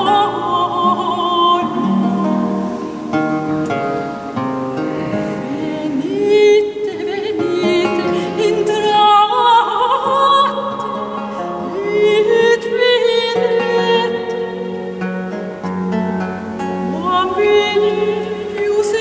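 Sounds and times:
soprano singing with vibrato: 0.0 - 4.1, 5.2 - 19.0
bowed viola da gamba: 0.0 - 9.1
plucked lute: 0.0 - 19.0.

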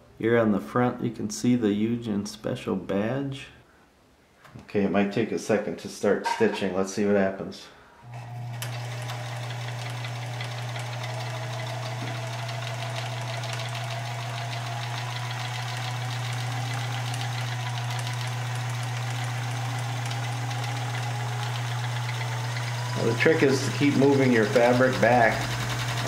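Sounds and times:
sewing machine motor hum: 8.0 - 26.0
fast ticking of stitching mechanism: 8.6 - 26.0.

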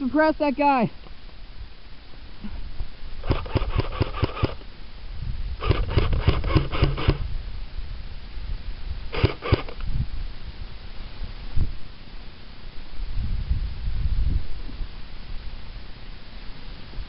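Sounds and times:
airsoft gun firing bursts: 3.2 - 4.7, 5.6 - 7.3, 9.1 - 9.8.

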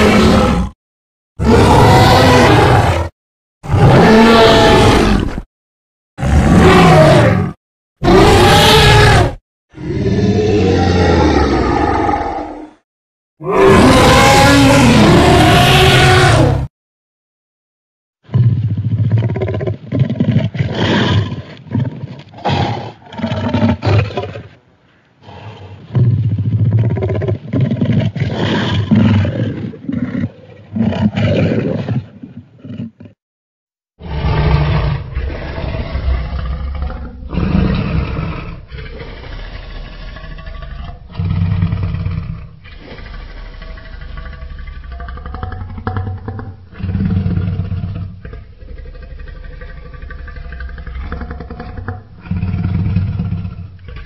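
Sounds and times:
deep rough dinosaur roars: 0.0 - 0.8, 1.4 - 5.4, 6.2 - 12.8, 13.4 - 16.7, 34.0 - 54.0
loud low roars: 34.0 - 46.0
deep rumbling growl: 34.0 - 54.0.

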